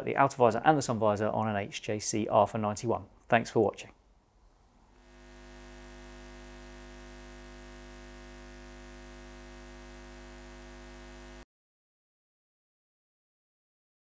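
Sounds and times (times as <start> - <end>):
low hum of held tones: 3.9 - 11.4.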